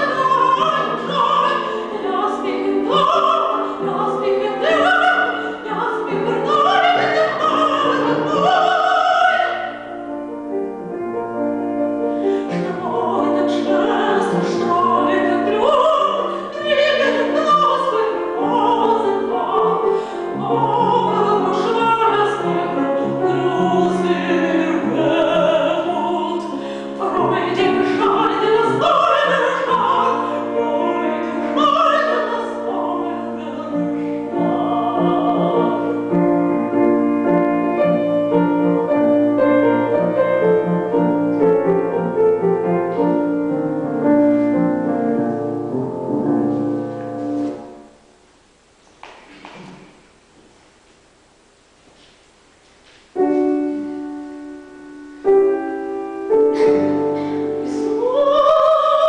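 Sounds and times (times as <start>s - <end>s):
woman singing operatically: 0.0s - 9.9s, 12.4s - 37.0s, 56.6s - 59.0s
grand piano accompaniment: 0.0s - 51.5s, 52.2s - 59.0s.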